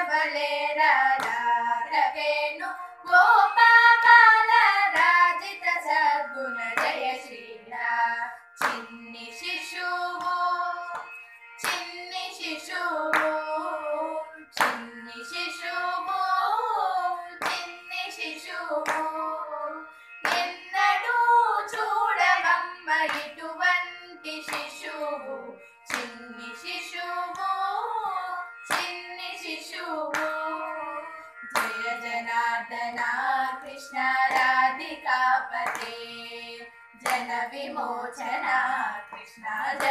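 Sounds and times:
women singing devotional song: 0.0s - 39.9s
hand claps and thigh slaps: 1.1s - 1.6s, 4.9s - 5.3s, 6.8s - 7.3s, 8.6s - 9.0s, 10.2s - 12.0s, 13.0s - 13.7s, 14.5s - 14.9s, 17.4s - 17.9s, 18.8s - 19.2s, 20.2s - 20.7s, 23.1s - 23.4s, 24.5s - 24.9s, 25.9s - 26.2s, 28.6s - 29.1s, 30.1s - 30.6s, 31.4s - 32.0s, 34.1s - 34.7s, 35.6s - 36.1s, 37.0s - 37.4s, 38.2s - 39.9s.

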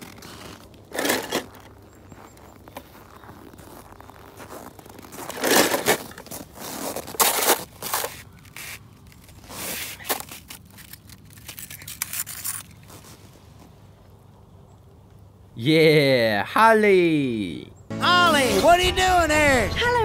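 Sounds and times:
toy cars scraping and rustling: 0.0s - 1.8s, 5.1s - 13.7s.

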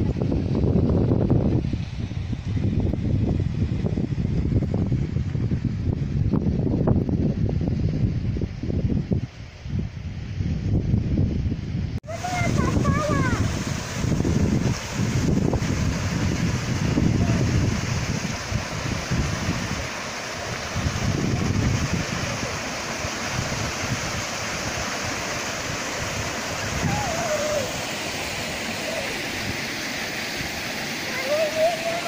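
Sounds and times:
wind rumbling on microphone: 0.0s - 32.0s
waterfall rushing: 12.0s - 32.0s.

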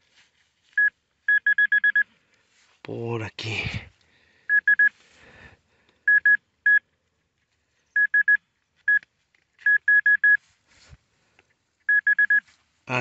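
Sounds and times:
high-pitched pinpointer beeps: 0.8s - 2.0s, 4.5s - 4.9s, 6.1s - 6.8s, 8.0s - 9.0s, 9.6s - 10.4s, 11.9s - 12.4s.

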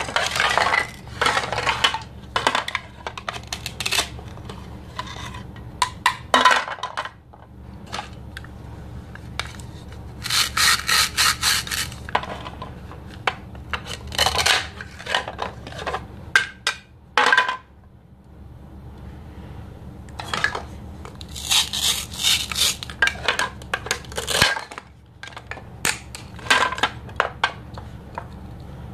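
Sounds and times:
velcro ripping apart: 10.2s - 12.1s, 21.2s - 22.9s.

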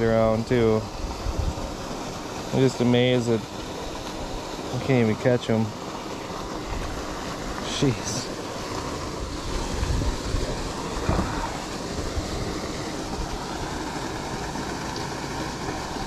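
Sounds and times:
wind buffeting microphone: 0.0s - 1.9s, 9.0s - 13.8s
dull thumps: 11.0s - 11.6s.

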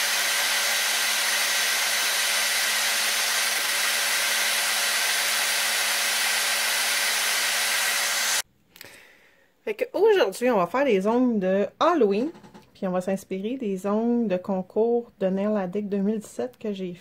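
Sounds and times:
dust extractor fan: 0.0s - 8.4s
electric nail drill whirring: 0.0s - 8.4s.

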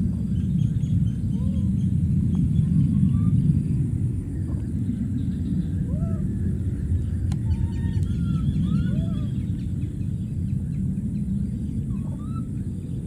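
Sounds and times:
low outdoor rumble: 0.0s - 13.0s
rising and falling animal calls: 5.5s - 9.8s, 11.8s - 13.0s.

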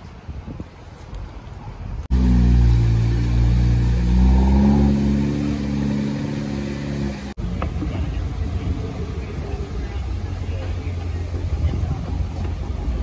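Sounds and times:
sports car engine pulling away: 2.1s - 7.4s.

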